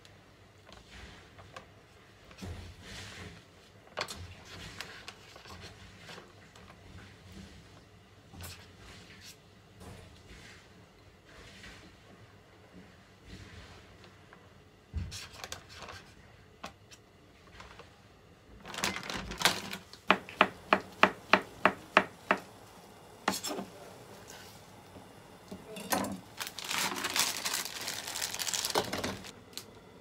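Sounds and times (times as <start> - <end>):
knife chopping on cutting board: 20.1 - 22.4
rustling: 26.2 - 29.4.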